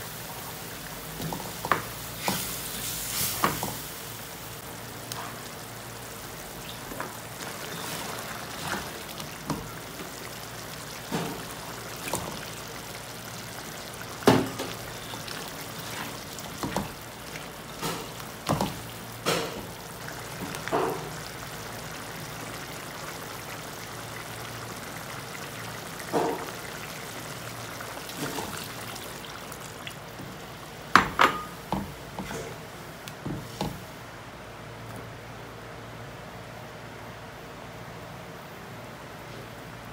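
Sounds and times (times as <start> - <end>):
curry simmering and bubbling: 5.4 - 30.6.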